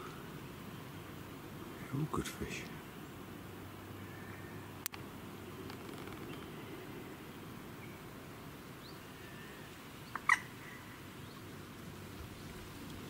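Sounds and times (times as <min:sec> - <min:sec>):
birds chirping: 0:05.4 - 0:13.0.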